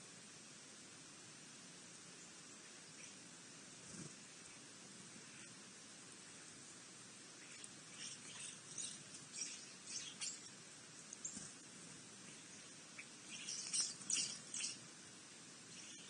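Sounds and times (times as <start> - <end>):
small birds chirping: 2.1 - 6.6, 7.3 - 15.0, 15.6 - 16.0.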